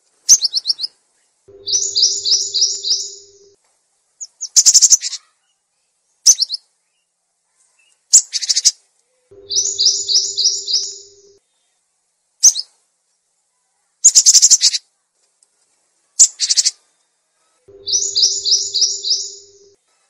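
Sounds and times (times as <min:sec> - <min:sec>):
birds chirping and trilling: 0:00.3 - 0:03.6, 0:07.8 - 0:11.4, 0:16.2 - 0:16.9, 0:17.7 - 0:19.8
faint low hum: 0:01.2 - 0:04.2, 0:09.0 - 0:12.3, 0:16.8 - 0:20.0
repeated bird notes: 0:01.5 - 0:03.6, 0:09.3 - 0:11.4, 0:17.7 - 0:19.8.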